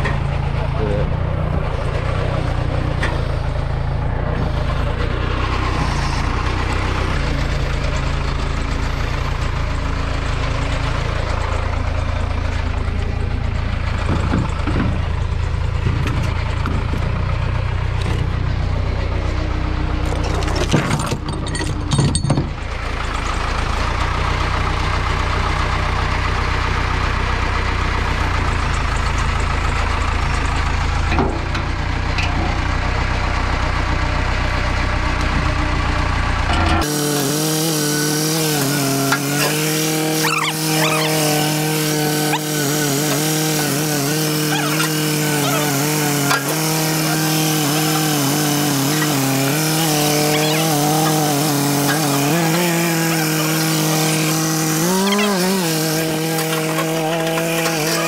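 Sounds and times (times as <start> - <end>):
engine idling: 0.0 - 36.9.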